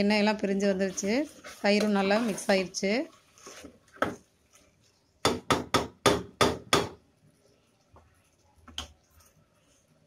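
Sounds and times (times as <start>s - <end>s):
wooden spatula knocking on metal: 5.2s - 7.0s.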